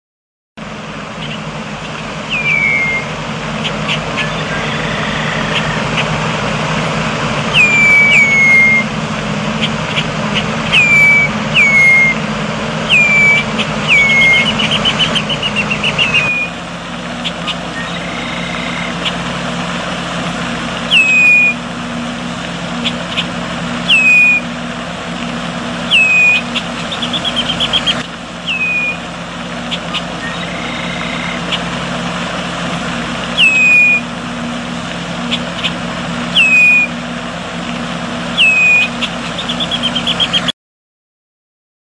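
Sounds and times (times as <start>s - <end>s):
steady low hum: 0.6s - 40.5s
bird whistled calls: 1.2s - 6.2s, 7.4s - 9.0s, 9.6s - 12.2s, 12.8s - 16.6s, 17.2s - 19.3s, 20.9s - 21.7s, 22.8s - 24.6s, 25.8s - 31.7s, 33.3s - 34.1s, 35.2s - 37.0s, 38.3s - 40.5s.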